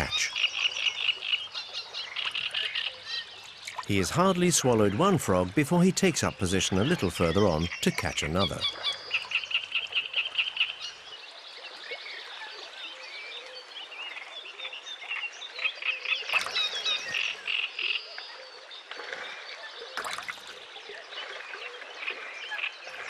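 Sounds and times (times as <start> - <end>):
bird calls: 0.0 - 11.0, 15.6 - 18.6
frogs chirping and trilling: 0.0 - 23.0.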